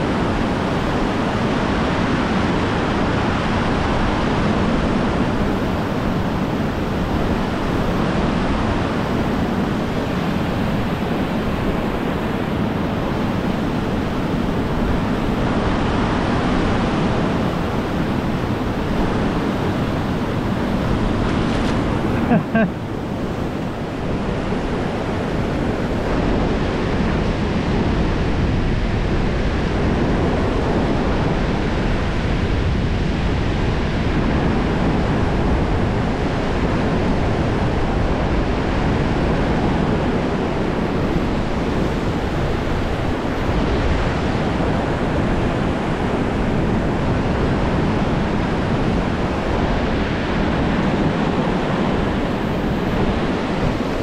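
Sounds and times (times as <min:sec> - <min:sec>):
water noise: 0:00.0 - 0:54.0
wind buffeting microphone: 0:00.0 - 0:54.0.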